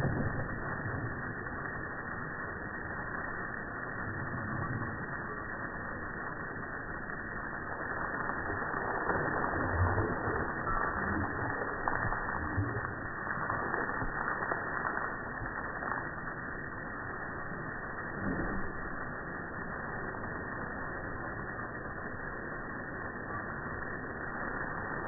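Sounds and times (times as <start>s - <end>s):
hose water spraying and splashing: 0.0s - 21.9s.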